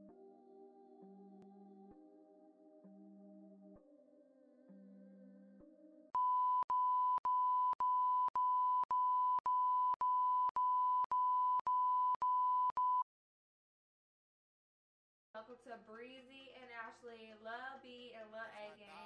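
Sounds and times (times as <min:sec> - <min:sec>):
soft ambient music: 0:00.0 - 0:06.2
steady high-pitched test tone beeps: 0:06.2 - 0:13.0.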